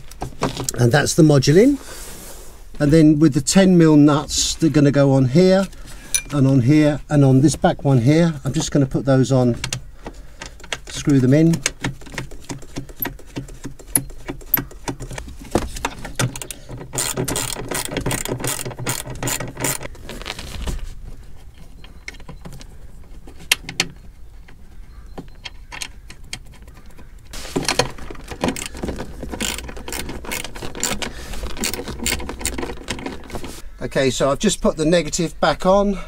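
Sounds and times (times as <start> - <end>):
ratchet wrench clicking: 16.4 - 19.9, 28.6 - 32.9.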